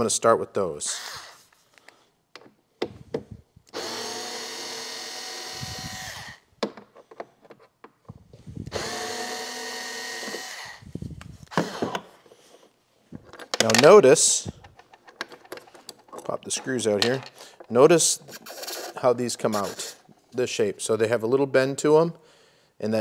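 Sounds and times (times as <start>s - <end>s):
electric screwdriver motor: 3.7s - 6.4s, 8.7s - 10.9s.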